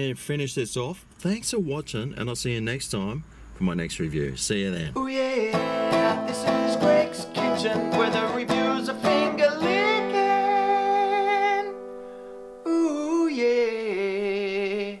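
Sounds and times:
strummed guitar chords: 0:05.0 - 0:13.0.

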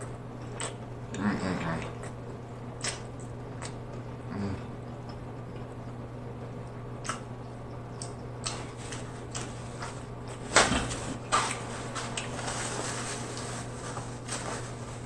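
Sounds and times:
chewing and lip smacking: 0:00.0 - 0:02.2, 0:02.8 - 0:04.0, 0:06.6 - 0:09.9
steady low hum: 0:00.0 - 0:15.0
wet mouth clicks: 0:02.8 - 0:03.8, 0:07.0 - 0:07.3.

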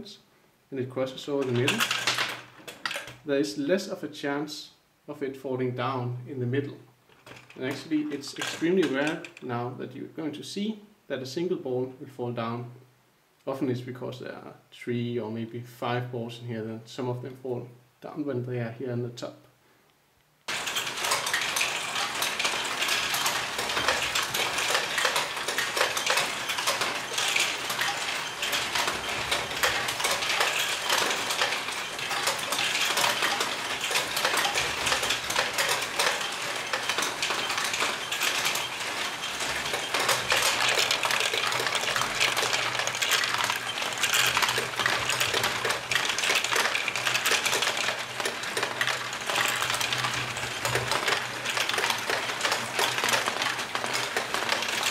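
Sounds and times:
plastic balls clattering: 0:01.3 - 0:03.3, 0:07.1 - 0:09.5, 0:20.5 - 0:54.9.

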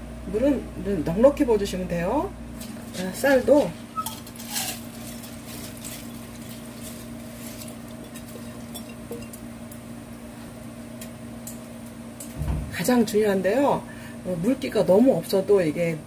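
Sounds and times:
steady low hum: 0:00.0 - 0:16.0
wet rice pattering into wok: 0:04.1 - 0:08.8.

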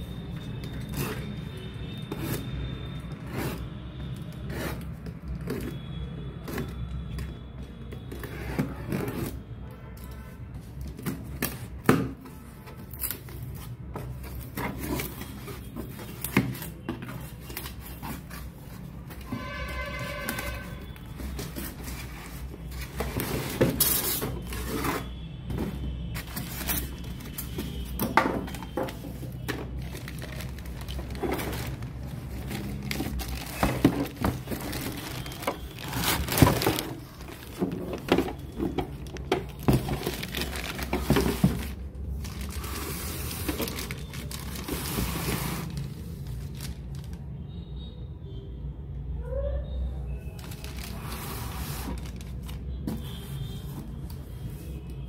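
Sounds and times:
plastic wrap rustling: 0:11.0 - 0:47.3, 0:50.3 - 0:55.0
foam packing pieces rustling: 0:26.1 - 0:47.2, 0:50.4 - 0:54.5
cardboard carton scraping: 0:30.5 - 0:38.5, 0:39.6 - 0:46.0, 0:50.8 - 0:52.2.

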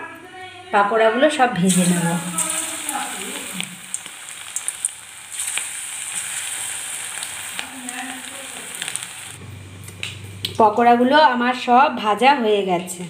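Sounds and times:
food deep-frying in oil: 0:01.6 - 0:09.4
oil popping and crackling: 0:01.7 - 0:09.4.

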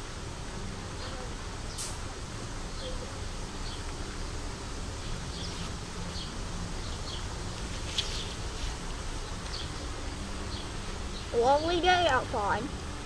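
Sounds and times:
sharp click: 0:01.8 - 0:02.0.

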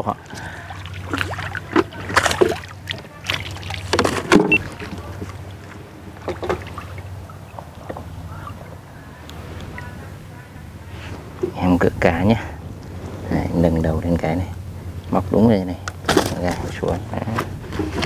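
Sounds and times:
fish splashing at water surface: 0:00.3 - 0:07.2.

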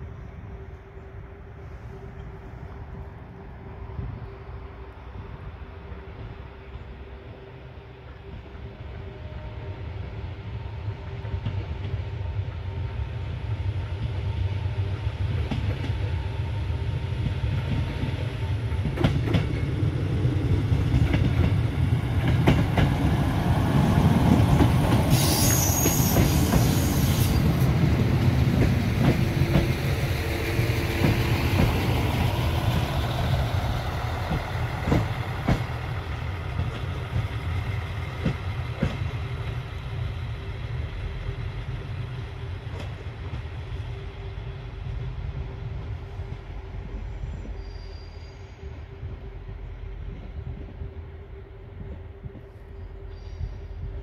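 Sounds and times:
diesel train engine rumble: 0:00.0 - 0:54.0
wheels clacking over rail joints: 0:27.4 - 0:39.6.

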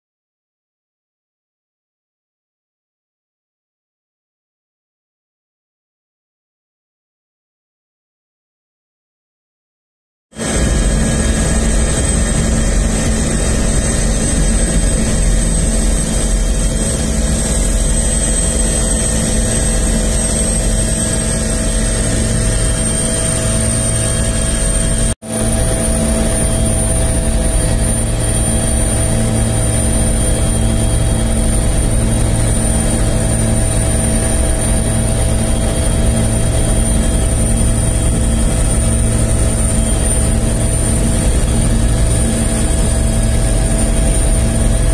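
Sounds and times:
helicopter rotor drone: 0:10.4 - 0:44.9
helicopter turbine whine: 0:10.4 - 0:44.9.

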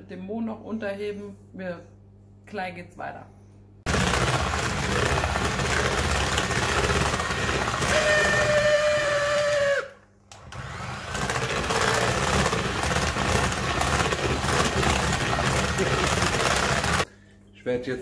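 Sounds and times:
electric hand mixer whisking batter: 0:03.9 - 0:17.1.

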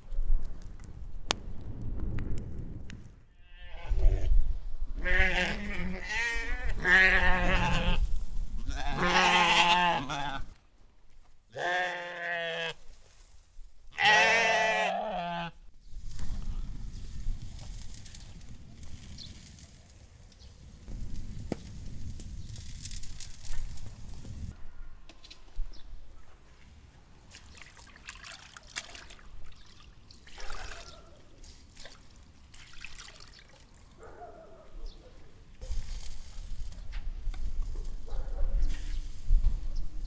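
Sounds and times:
sheep bleating: 0:03.4 - 0:04.3, 0:05.0 - 0:08.0, 0:08.6 - 0:10.5, 0:11.5 - 0:12.8, 0:14.0 - 0:15.6.

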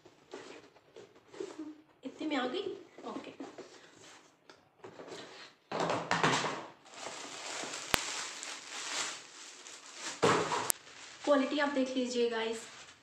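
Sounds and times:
plastic bag rustling and crinkling: 0:06.2 - 0:13.0.

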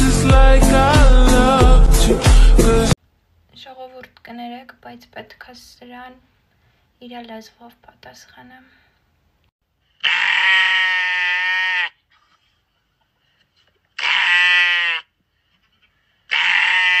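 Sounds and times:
sheep bleating: 0:10.0 - 0:12.0, 0:14.0 - 0:15.1, 0:16.3 - 0:17.0.

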